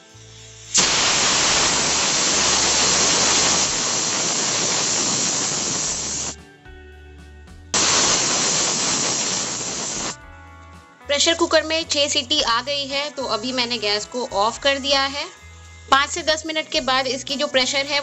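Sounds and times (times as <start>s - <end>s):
pressure cooker whistling: 0.0s - 6.4s, 7.8s - 10.2s.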